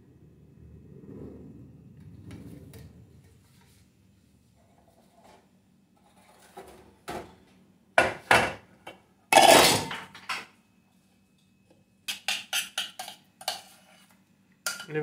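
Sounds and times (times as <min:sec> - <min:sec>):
pots and dishes clattering: 0:09.3 - 0:10.5, 0:12.1 - 0:14.0, 0:14.6 - 0:15.0.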